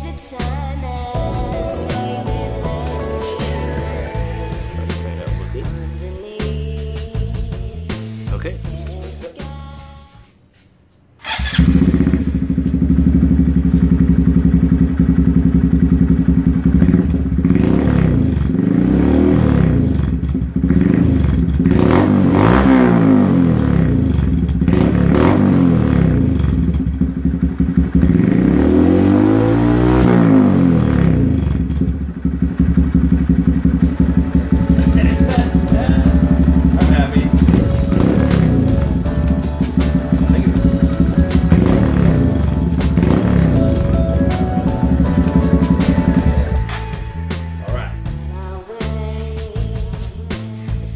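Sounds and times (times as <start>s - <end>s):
motorcycle engine idling and revving: 11.2s - 50.9s.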